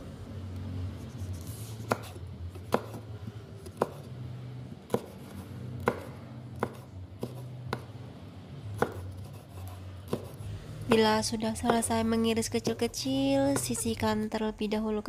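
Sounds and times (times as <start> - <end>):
knife chopping on wooden board: 1.8 - 3.0, 3.6 - 4.1, 4.9 - 7.9, 8.8 - 11.9, 13.5 - 13.8.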